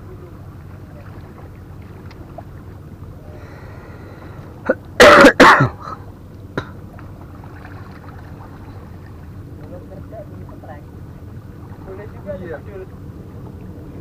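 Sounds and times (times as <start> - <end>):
low background rumble: 0.0 - 14.0
person coughing: 4.7 - 6.0.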